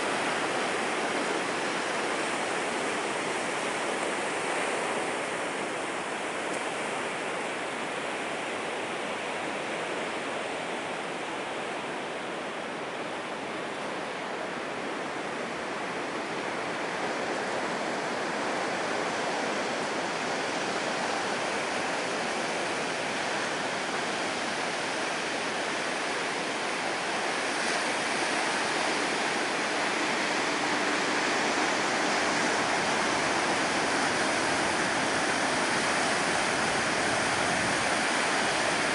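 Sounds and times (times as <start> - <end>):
ocean surf breaking on rocks: 15.2 - 38.9.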